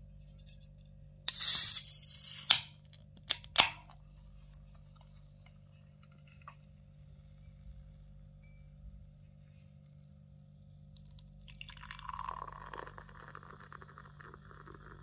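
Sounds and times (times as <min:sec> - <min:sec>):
can opening pop and hiss: 0:01.3 - 0:02.7.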